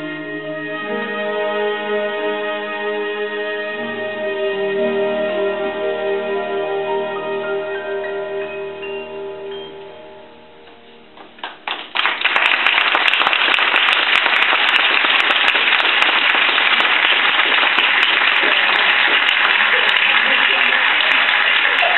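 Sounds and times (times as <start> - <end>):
audience applauding: 11.3 - 21.9.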